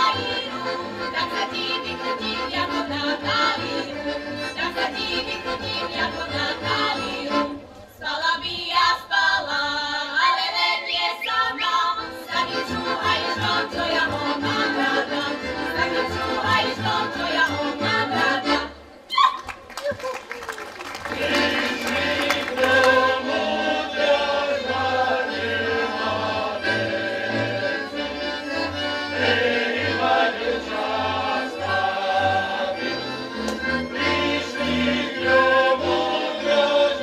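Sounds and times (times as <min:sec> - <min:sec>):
women singing folk song in chorus: 0:00.0 - 0:18.8, 0:21.1 - 0:33.2, 0:33.9 - 0:37.0
instrumental accompaniment: 0:21.2 - 0:37.0.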